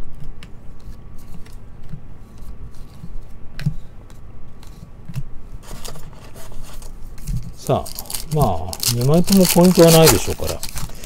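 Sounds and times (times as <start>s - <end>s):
pack wrapping crinkling: 7.6s - 11.0s
cards sliding and flicking: 7.7s - 11.0s.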